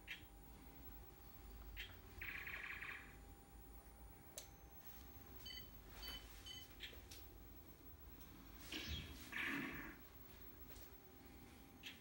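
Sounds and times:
short electronic beeps: 5.4 - 6.9.

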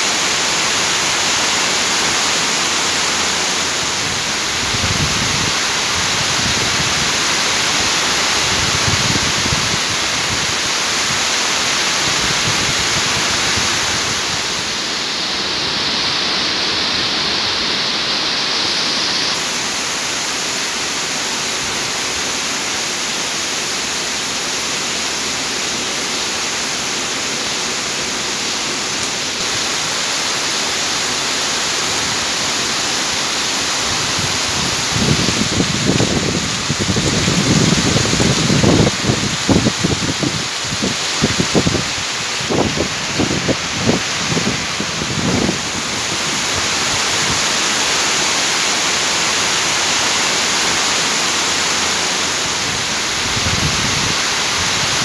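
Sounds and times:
heavy rain hissing: 0.0 - 55.0.

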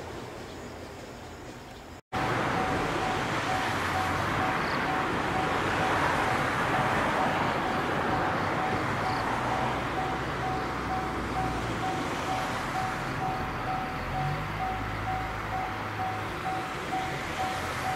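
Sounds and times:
level crossing warning bell: 2.2 - 17.9.

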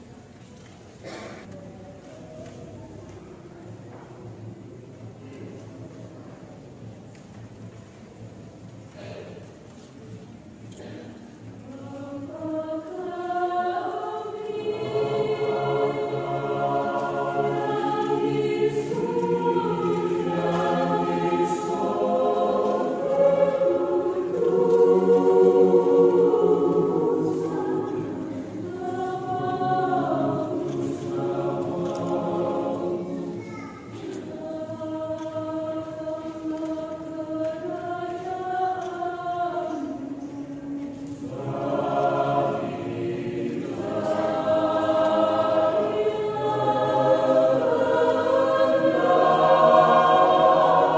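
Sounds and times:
mixed choir singing: 10.6 - 50.9.

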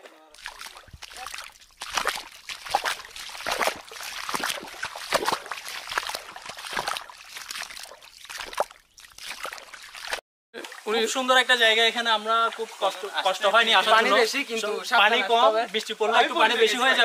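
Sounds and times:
bare feet splashing through water: 0.3 - 11.2
stream trickling: 0.3 - 17.0.

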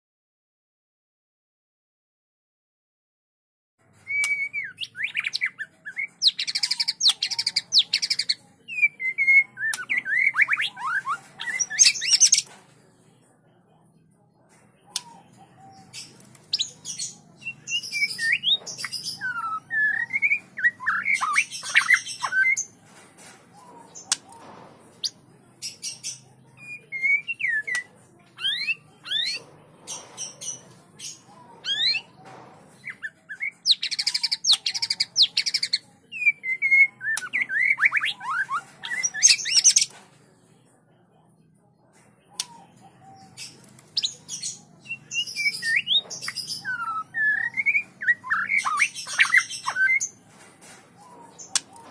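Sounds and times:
bird whistling song: 4.0 - 12.5, 16.5 - 22.7, 26.6 - 29.4, 32.8 - 39.9, 44.0 - 50.1
bird rasping chatter: 4.1 - 12.5, 14.9 - 26.2, 26.9 - 35.8, 36.4 - 40.0, 42.3 - 51.9.

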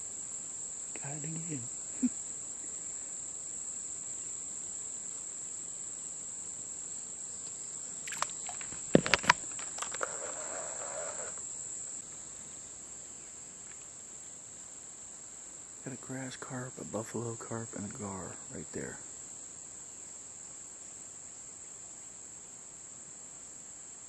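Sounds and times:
insects droning: 0.0 - 24.0
brief rustle: 7.4 - 11.4.

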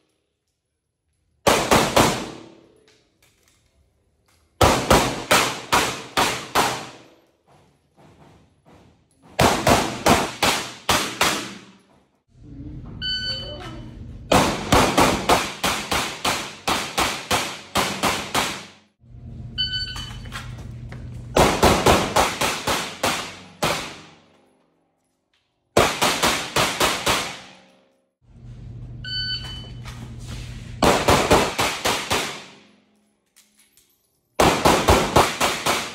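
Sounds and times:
handgun shots echoing indoors: 1.2 - 7.3, 9.3 - 12.0, 14.3 - 18.9, 21.3 - 28.1, 30.8 - 35.9
short electronic beep: 13.0 - 13.8, 19.5 - 20.3, 29.0 - 29.8.

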